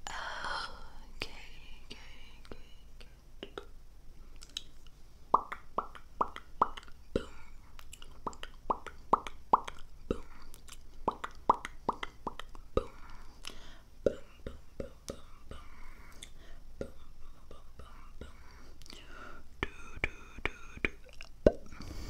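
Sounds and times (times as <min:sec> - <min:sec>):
faint mouth clicks: 0:04.4 - 0:04.8, 0:07.8 - 0:15.3, 0:18.8 - 0:19.0
mouth pops: 0:05.3 - 0:07.0, 0:07.8 - 0:09.9, 0:10.5 - 0:12.6, 0:20.8 - 0:21.8.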